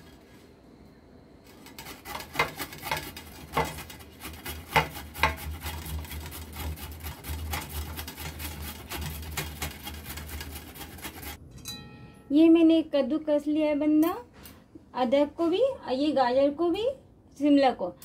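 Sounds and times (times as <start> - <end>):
carrot grating on metal grater: 1.5 - 11.4
grater clicks: 1.6 - 11.4.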